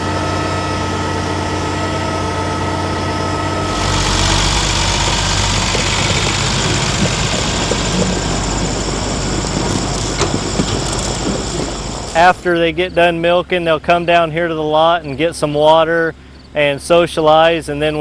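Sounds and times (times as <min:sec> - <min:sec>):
tractor engine rumble: 0:00.0 - 0:18.0
mixer wagon running: 0:03.6 - 0:12.5.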